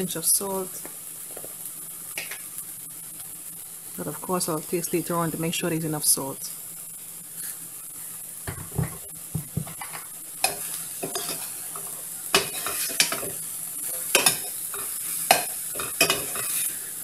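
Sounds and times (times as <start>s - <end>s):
food sizzling in oil: 0.0s - 17.0s
spoon scraping and knocking pan: 8.5s - 16.8s.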